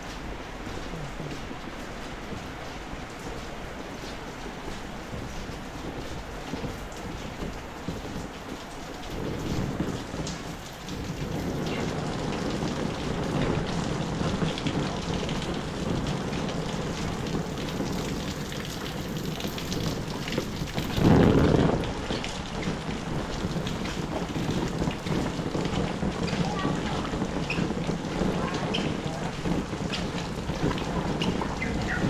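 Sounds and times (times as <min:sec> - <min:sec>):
heavy rain falling: 0:00.0 - 0:32.0.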